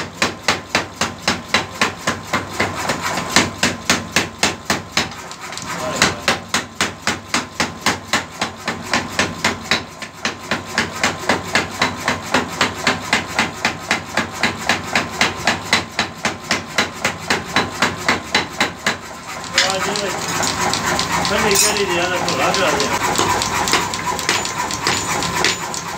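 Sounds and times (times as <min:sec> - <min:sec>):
power hammer striking hot steel: 0:00.2 - 0:25.9.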